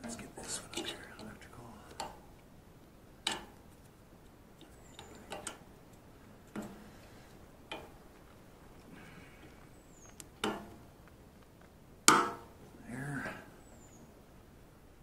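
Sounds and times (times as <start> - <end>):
hands clicking and tapping parts: 3.2 - 3.6, 4.6 - 6.8, 7.7 - 8.0.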